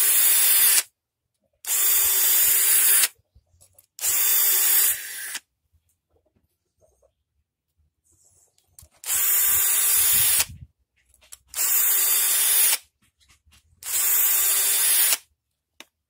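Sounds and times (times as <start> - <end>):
drill motor hum: 0.0 - 0.8, 1.7 - 3.1, 4.0 - 5.4, 9.0 - 10.6, 11.6 - 12.8, 13.8 - 15.2.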